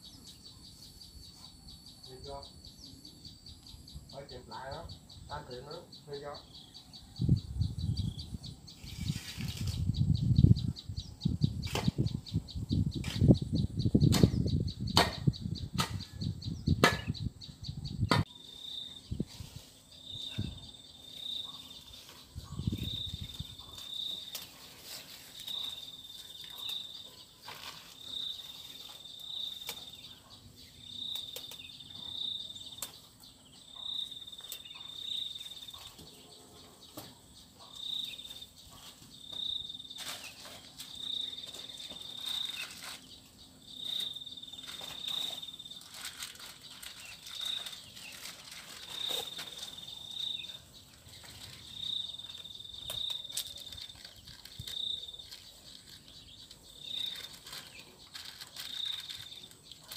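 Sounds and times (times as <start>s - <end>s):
wind rumbling on microphone: 7.0s - 18.3s, 22.4s - 23.8s
sharp knocks: 16.8s - 17.2s.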